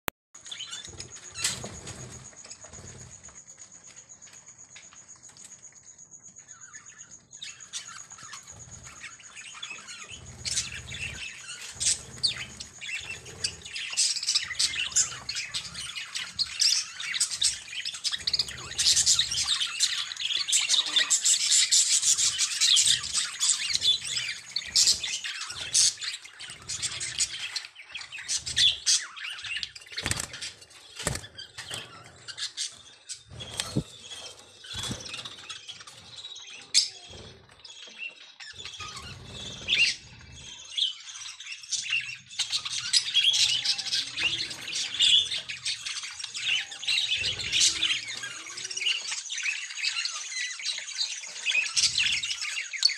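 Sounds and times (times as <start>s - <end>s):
lovebirds chattering: 0.4s - 52.9s.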